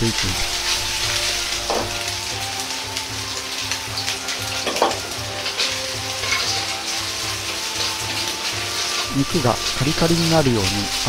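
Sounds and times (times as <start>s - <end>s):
pork sizzling in a wok: 0.0s - 11.0s
ladle scraping a wok: 4.6s - 11.0s.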